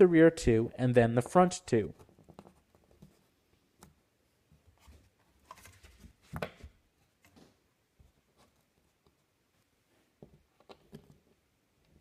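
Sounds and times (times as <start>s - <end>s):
faint clicks and taps: 1.9s - 9.3s.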